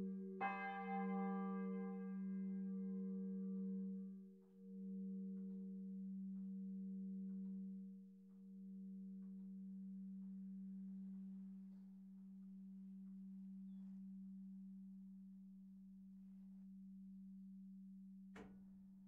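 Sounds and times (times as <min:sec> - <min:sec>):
church bells humming: 0:00.0 - 0:04.2.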